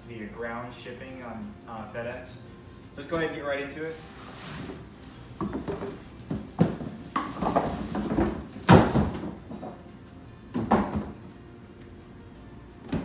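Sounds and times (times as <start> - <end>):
cardboard scraping on cardboard: 3.9 - 4.9.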